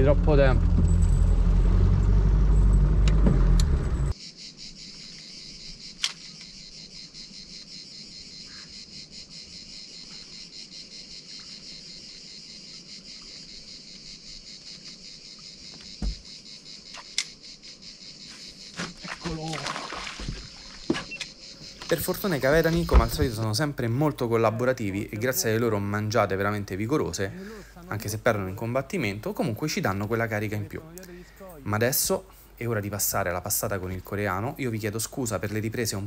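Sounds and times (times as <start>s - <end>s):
crickets chirping: 4.1s - 36.0s.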